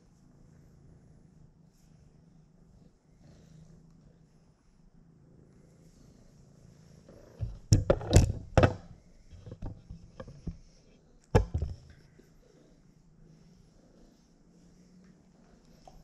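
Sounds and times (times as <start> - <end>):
knocks and thuds on microphone: 7.4 - 10.6, 11.3 - 11.9.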